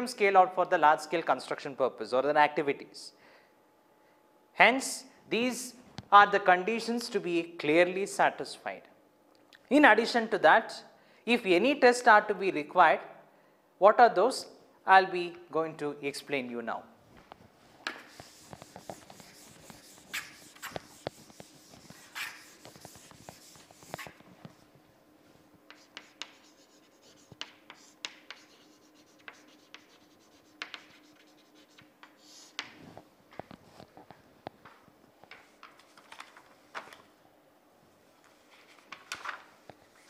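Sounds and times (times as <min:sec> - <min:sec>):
chalk tapping on board: 0:17.8 - 0:24.6, 0:25.7 - 0:32.8
chalk scratching on chalkboard: 0:17.9 - 0:24.6, 0:25.7 - 0:32.8.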